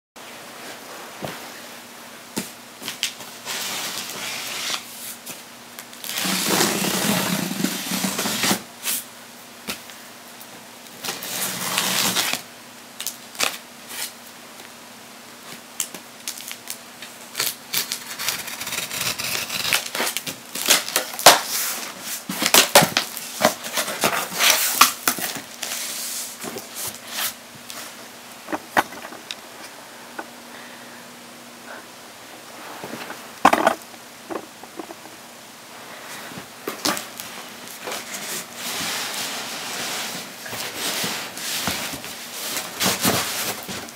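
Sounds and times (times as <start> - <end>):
box cutter scraping tape: 6.0 - 8.6, 11.1 - 12.4, 17.4 - 21.4
plastic wrap crinkling and tearing: 15.8 - 25.8.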